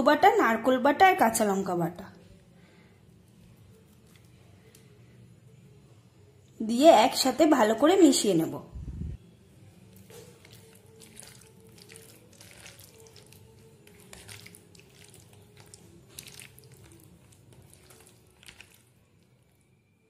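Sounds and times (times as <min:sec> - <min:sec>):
wet squelches of hand mixing food: 0:03.4 - 0:04.9, 0:09.8 - 0:19.7
small splats and clicks: 0:13.9 - 0:18.9.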